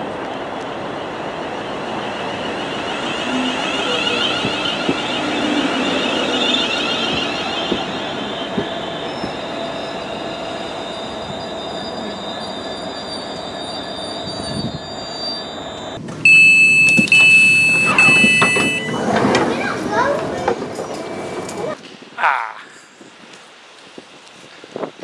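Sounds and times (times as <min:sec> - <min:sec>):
electric train whining: 0:00.0 - 0:21.8
wheel and brake squeal: 0:02.1 - 0:19.7
train door beeps: 0:02.4 - 0:19.7.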